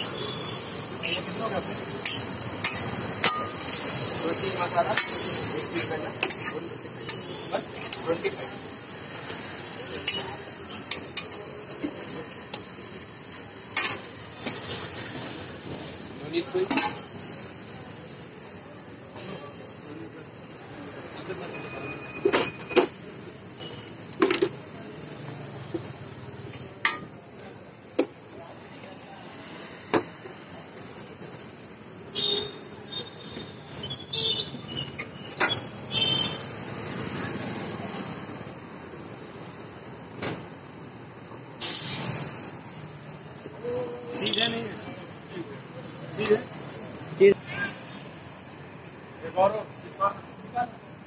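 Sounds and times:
batter sizzling on griddle: 0.0s - 22.2s, 40.8s - 47.2s
metal spatula clinking on griddle: 1.0s - 1.3s, 2.0s - 3.9s, 4.9s - 5.3s, 6.2s - 7.2s, 26.8s - 27.2s.

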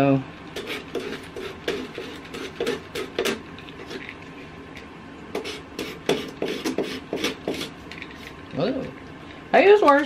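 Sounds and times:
hand tool scraping wood: 0.6s - 4.0s, 5.3s - 7.8s.

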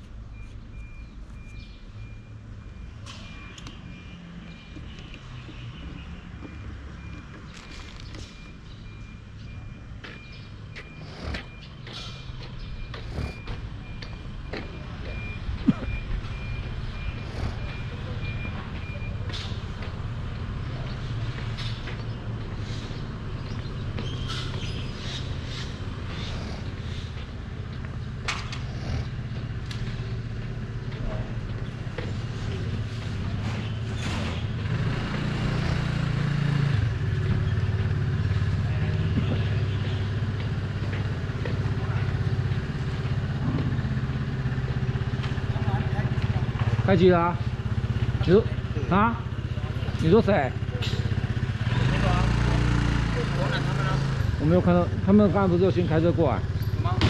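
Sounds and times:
vehicle engine humming: 0.0s - 57.0s
high intermittent beeping: 8.3s - 19.3s.

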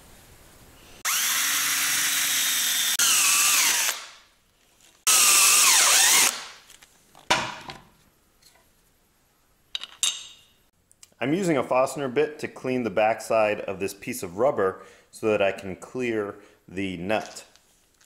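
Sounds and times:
drill whining through metal: 1.0s - 4.1s, 5.1s - 6.5s.

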